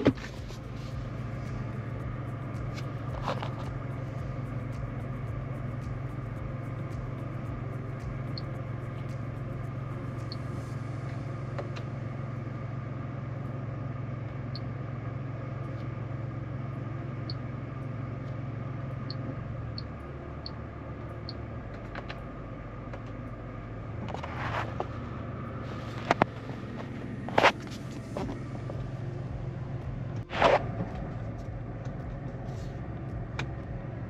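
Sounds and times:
car engine and road drone: 0.0 - 34.0.

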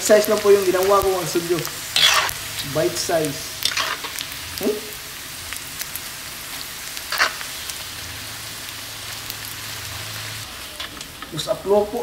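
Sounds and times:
fat sizzling in hot oil: 0.0 - 12.0
mesh strainer scraping wok: 2.0 - 2.4.

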